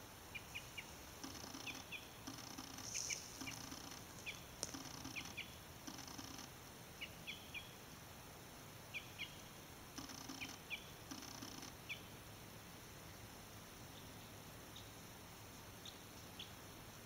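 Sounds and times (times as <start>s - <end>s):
faint outdoor hiss: 0.0s - 17.0s
small bird chirping: 0.3s - 7.8s, 8.9s - 12.2s.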